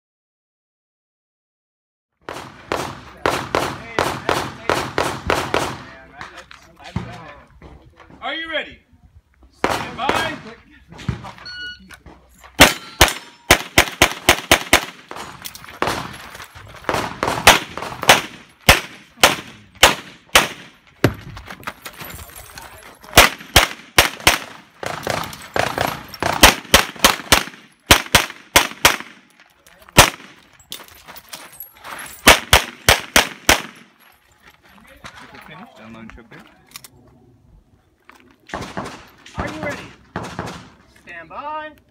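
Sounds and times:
shot timer beep: 11.4s - 11.9s.

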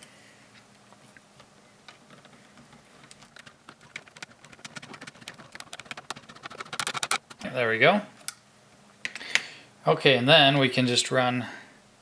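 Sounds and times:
plastic parts clicking and knocking: 1.9s - 7.5s.

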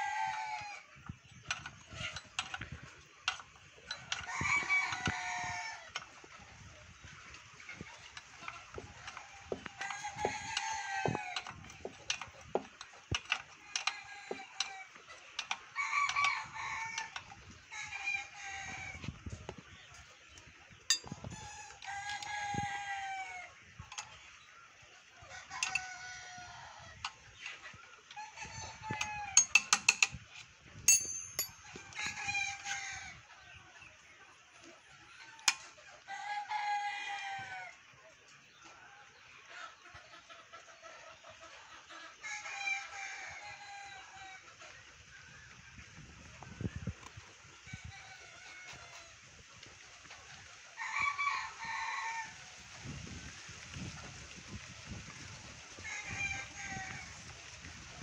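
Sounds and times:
chickens calling: 0.0s - 29.8s
hand tools clicking on metal: 29.0s - 30.2s, 30.9s - 31.6s.

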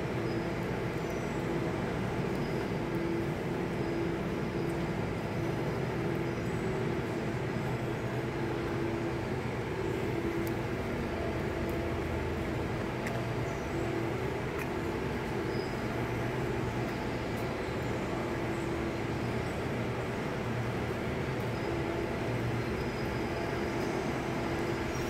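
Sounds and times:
faint hum: 0.0s - 25.0s.

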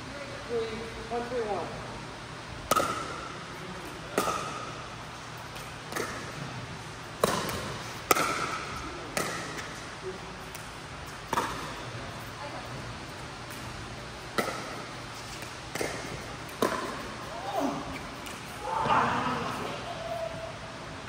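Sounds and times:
ball bouncing on hard court: 2.7s - 3.3s, 5.6s - 6.4s, 7.2s - 9.7s, 11.3s - 11.8s, 14.3s - 18.4s
paddles striking pickleball: 2.7s - 3.3s, 4.1s - 4.8s, 5.6s - 6.4s, 7.2s - 9.8s, 14.3s - 17.2s.

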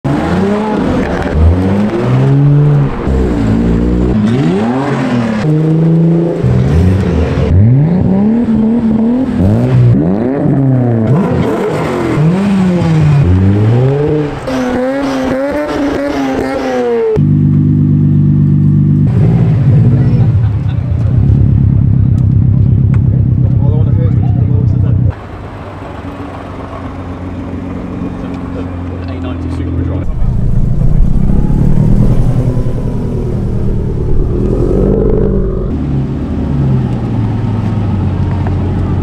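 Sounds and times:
sports car engines revving: 0.1s - 25.2s, 26.4s - 39.0s.

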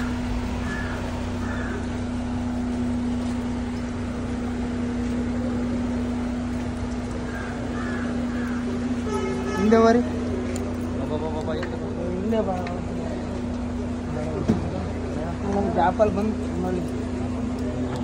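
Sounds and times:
crows cawing: 0.0s - 2.2s, 7.1s - 9.7s
steady low hum: 0.0s - 18.0s.

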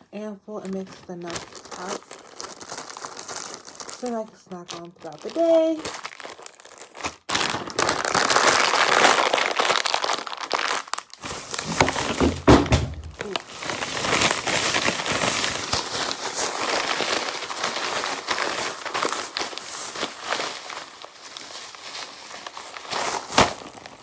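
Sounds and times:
plastic bags crinkling: 0.2s - 24.0s
nuts shaken in a bag: 1.3s - 6.1s.

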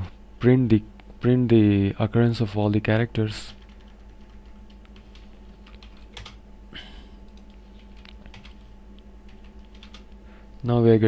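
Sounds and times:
computer keyboard typing: 3.4s - 6.4s, 7.2s - 10.1s.

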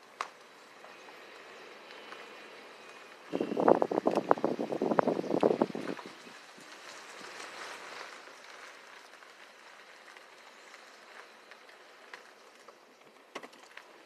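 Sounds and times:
faint outdoor hiss: 0.0s - 14.0s.

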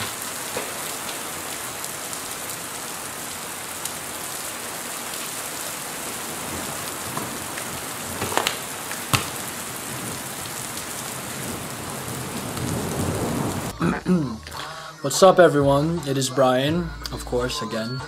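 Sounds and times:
heavy rain: 0.0s - 13.8s
sharp knocks: 8.2s - 9.5s.

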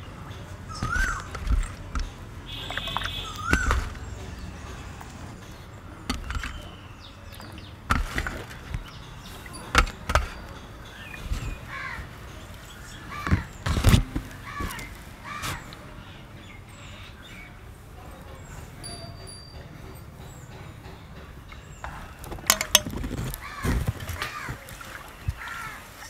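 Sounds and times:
crows cawing: 11.6s - 12.2s, 13.0s - 13.6s, 14.3s - 15.7s, 23.4s - 24.7s, 25.4s - 26.0s
steel plate and bowl clattering: 22.4s - 24.6s.

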